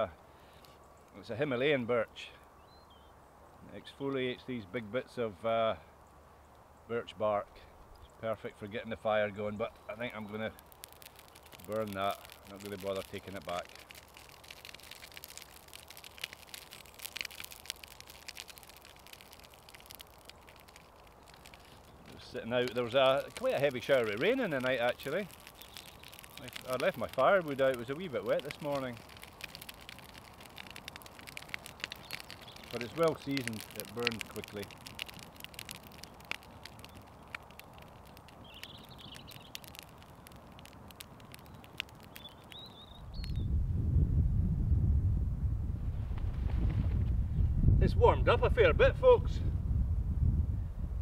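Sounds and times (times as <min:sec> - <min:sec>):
campfire crackling and popping: 0:07.6 - 0:43.6.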